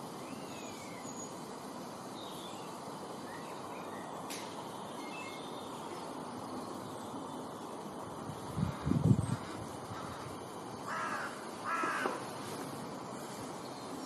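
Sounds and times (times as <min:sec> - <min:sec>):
outdoor background noise: 0:00.0 - 0:14.0
faint bird chirps: 0:04.8 - 0:07.7.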